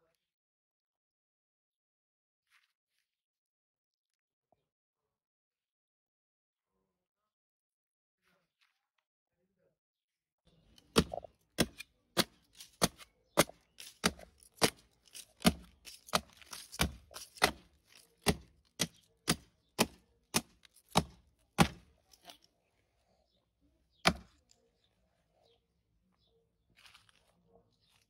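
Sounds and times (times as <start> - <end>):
meat cleaver chopping wood: 10.8 - 21.9, 24.0 - 24.3.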